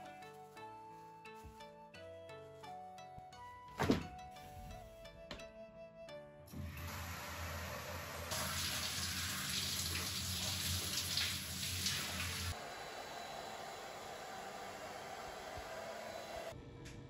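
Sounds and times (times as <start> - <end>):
shower spraying water: 6.6 - 12.6
hair dryer blowing: 12.0 - 16.6.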